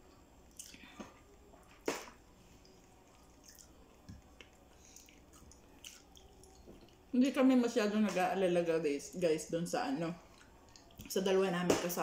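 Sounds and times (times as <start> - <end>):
chewing mouth smacks and clicks: 0.5 - 0.8, 3.1 - 7.0.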